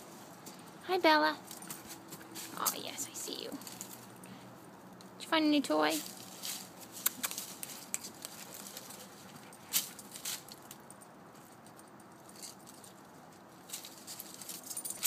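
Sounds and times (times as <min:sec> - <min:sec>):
leaves rustling: 0:01.4 - 0:05.0, 0:05.8 - 0:15.0
puppy chewing and tugging rug: 0:06.0 - 0:10.6.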